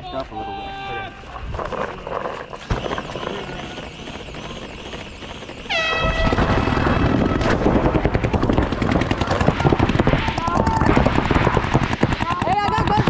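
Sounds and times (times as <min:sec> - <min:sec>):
air horn blast: 0:05.7 - 0:07.6
paintball markers popping: 0:08.2 - 0:13.0.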